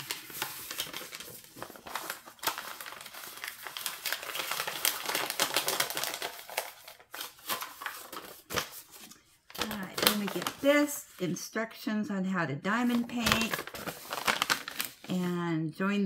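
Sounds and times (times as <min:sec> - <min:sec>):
packaging crinkling and rustling: 0:00.0 - 0:11.2, 0:12.8 - 0:15.1.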